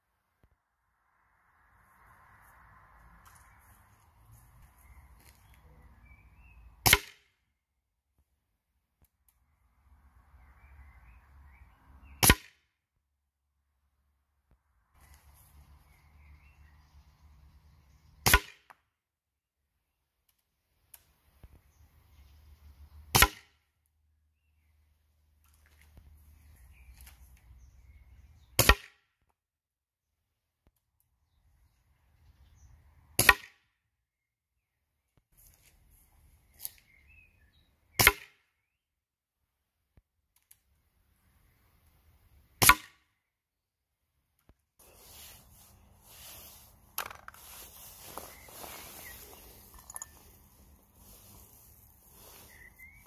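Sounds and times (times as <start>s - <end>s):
air pistol shots: 6.8s - 7.3s, 38.0s - 38.4s, 42.6s - 43.0s.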